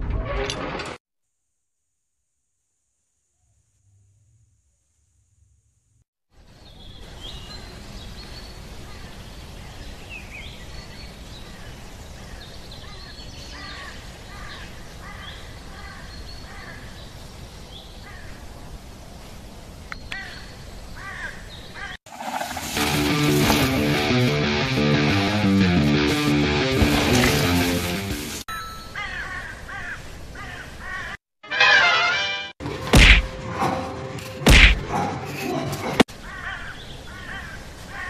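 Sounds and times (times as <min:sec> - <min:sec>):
birds calling: 0:19.9 - 0:23.8, 0:36.1 - 0:38.0
electric guitar music: 0:22.8 - 0:28.4.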